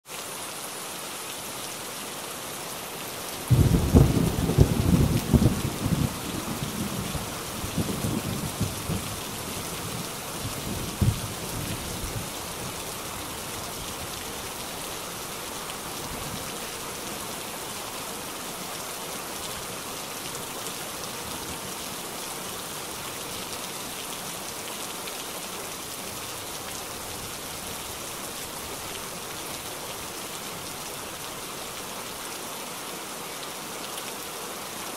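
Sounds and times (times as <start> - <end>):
running floodwater: 0.0 - 34.9
rain hissing: 0.1 - 33.2.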